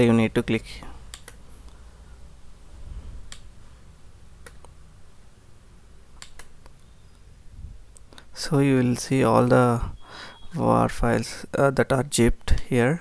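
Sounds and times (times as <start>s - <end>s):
faint low hum: 0.0s - 13.0s
computer mouse clicks: 1.1s - 1.8s, 3.3s - 3.5s, 4.4s - 4.8s, 6.2s - 7.2s.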